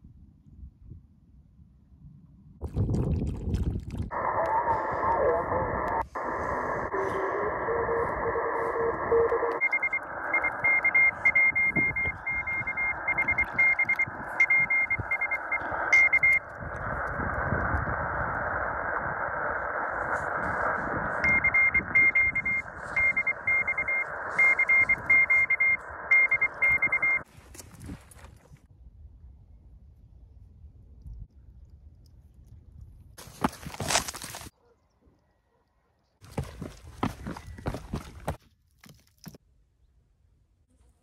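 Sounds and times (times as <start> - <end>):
radio band noise hiss: 4.1 - 27.2
morse code beeps: 6.9 - 16.6, 21.2 - 27.3.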